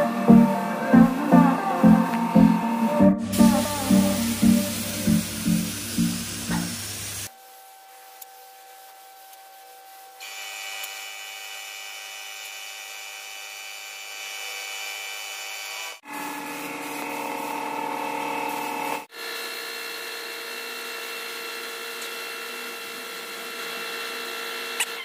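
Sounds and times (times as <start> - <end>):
background music: 0.0 - 7.2
air compressor humming: 0.0 - 7.3, 16.0 - 19.2
air spray gun hissing: 0.0 - 7.3, 16.1 - 19.1.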